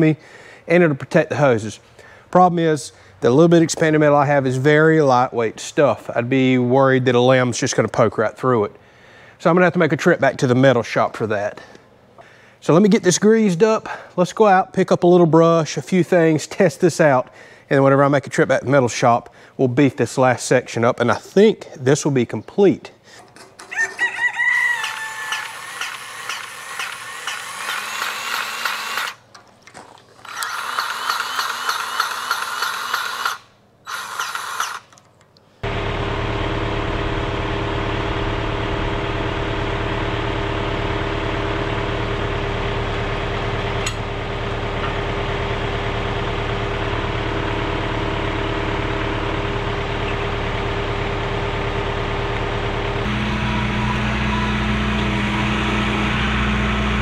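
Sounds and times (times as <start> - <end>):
grease gun ratcheting pump: 25.3 - 29.5, 30.2 - 35.2
tractor diesel engine idling: 35.6 - 57.0.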